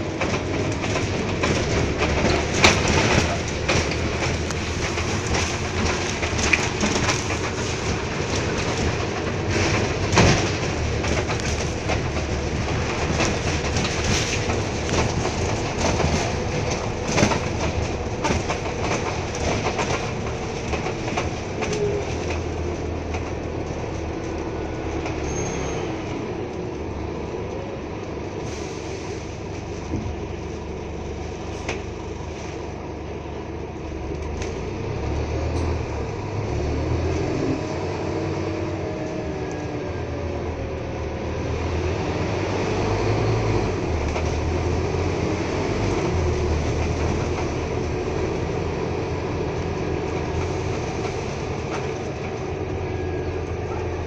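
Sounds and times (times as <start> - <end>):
bus diesel engine drone: 0.0 - 54.0.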